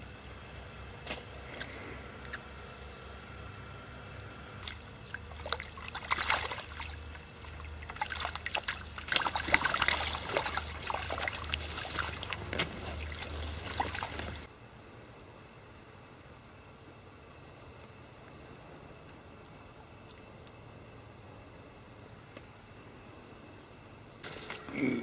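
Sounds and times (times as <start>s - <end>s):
water splashing and sloshing: 4.6s - 14.5s
small crackles: 7.0s - 14.5s.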